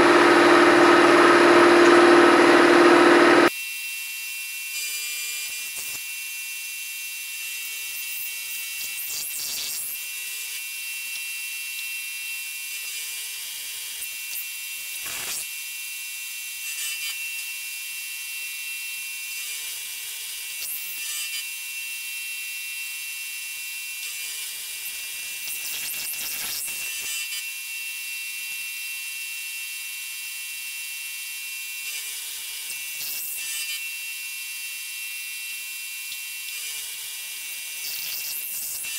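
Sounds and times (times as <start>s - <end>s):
milling machine whirring: 0.0s - 3.5s.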